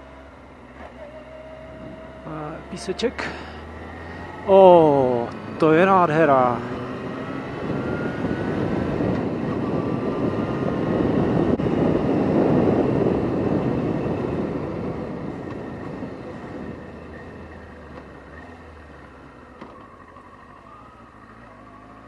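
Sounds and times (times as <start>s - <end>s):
motorcycle engine: 0.0s - 22.0s
wind rushing: 6.8s - 16.8s.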